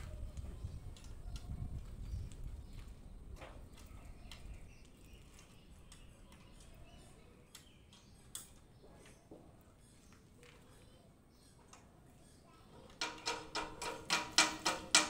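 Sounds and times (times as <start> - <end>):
metal clicks and taps: 13.0 - 15.0.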